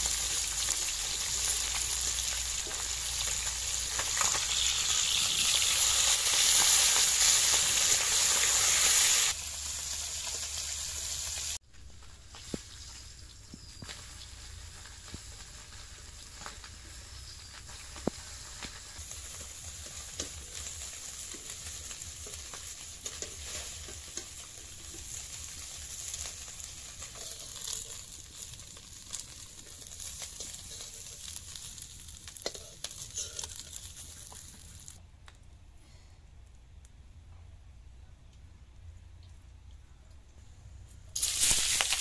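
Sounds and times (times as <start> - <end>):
fish sizzling in oil: 0.0 - 35.0, 41.2 - 42.0
metal spatula scraping wok: 18.3 - 34.9.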